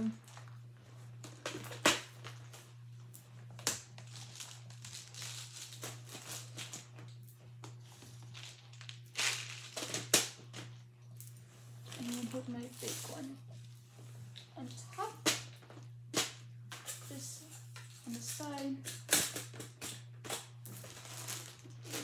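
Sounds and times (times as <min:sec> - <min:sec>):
packets rustling: 0:04.0 - 0:06.8, 0:08.1 - 0:10.1, 0:11.8 - 0:13.4, 0:20.3 - 0:22.0.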